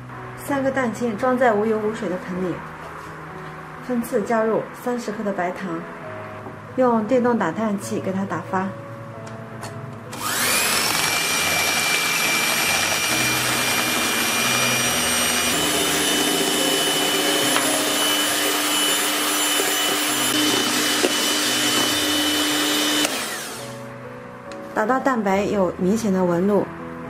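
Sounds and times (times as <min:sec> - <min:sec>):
electric hand mixer whine: 0:10.1 - 0:23.9.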